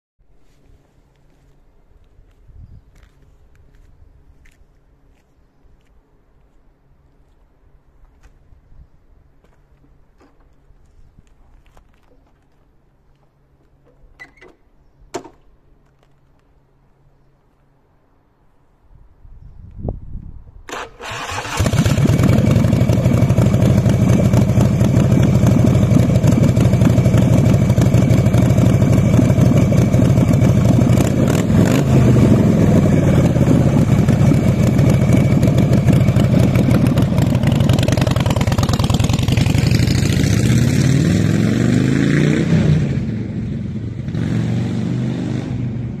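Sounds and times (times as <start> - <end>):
motorcycle accelerating through gears: 20.7 - 46.0
motorcycle engine starting: 20.7 - 46.0
motorcycle engine idling: 21.5 - 40.3.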